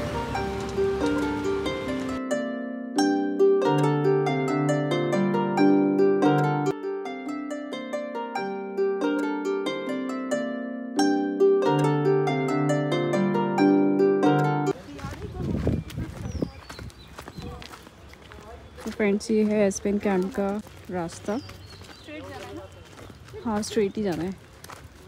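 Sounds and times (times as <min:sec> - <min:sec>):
plucked harp-like melody: 0:00.0 - 0:14.8
low bass notes: 0:11.0 - 0:14.8.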